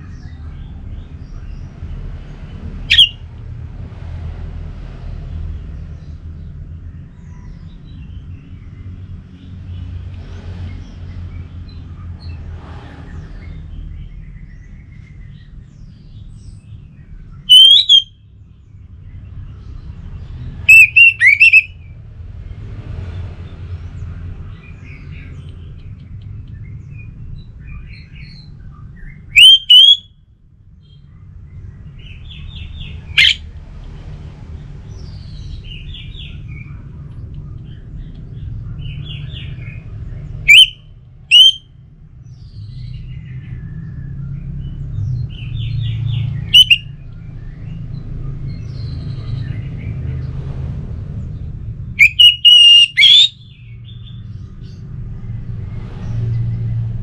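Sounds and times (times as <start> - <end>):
bird whistling song phrases: 2.8 - 3.2, 17.4 - 18.2, 20.6 - 21.9, 27.7 - 30.1, 32.0 - 33.4, 40.4 - 41.7, 45.3 - 47.0, 52.0 - 54.2
scratchy bird chattering: 2.9 - 3.2, 17.5 - 18.1, 20.7 - 21.7, 29.4 - 30.0, 33.2 - 33.4, 46.5 - 46.8, 52.0 - 53.3.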